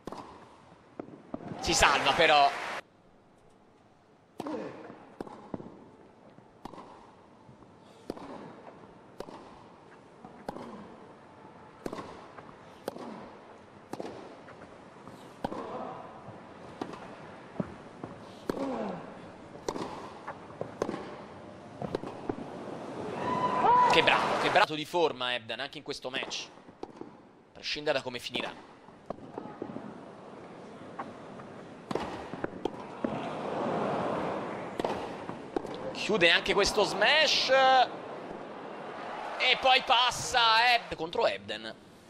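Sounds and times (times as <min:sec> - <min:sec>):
tennis racket hitting ball: 0:00.0 - 0:00.4, 0:08.0 - 0:09.7, 0:10.3 - 0:10.9, 0:11.8 - 0:14.3, 0:15.0 - 0:15.8, 0:16.7 - 0:18.8, 0:19.6 - 0:22.5, 0:31.8 - 0:33.2, 0:34.7 - 0:36.7.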